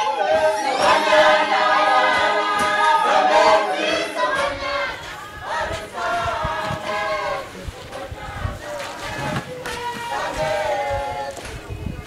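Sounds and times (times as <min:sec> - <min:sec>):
choir singing in harmony: 0:00.0 - 0:11.4
low thuds: 0:04.4 - 0:12.0.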